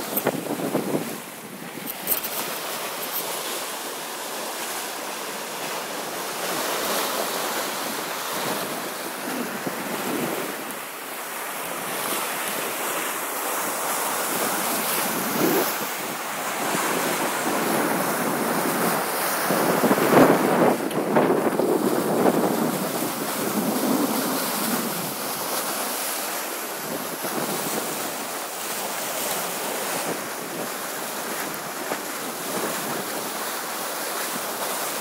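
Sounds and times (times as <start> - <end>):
wind buffeting microphone: 0.0 - 2.8, 7.4 - 10.9, 11.7 - 28.4
water rushing along hull: 0.0 - 35.0.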